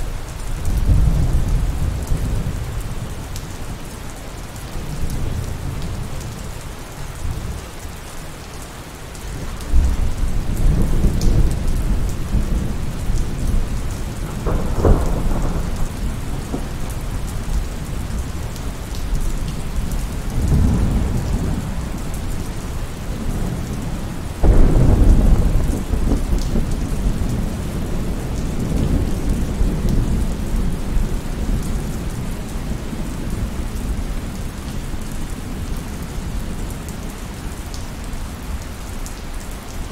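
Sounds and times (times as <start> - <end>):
steady rain: 0.0 - 39.9
rolling thunder: 9.7 - 18.6, 19.2 - 22.2, 23.1 - 34.1.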